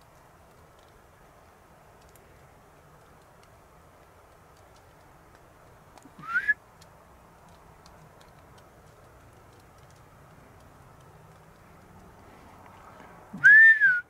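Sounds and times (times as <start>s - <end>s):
short rising whistle: 6.2s - 6.6s, 13.4s - 14.0s.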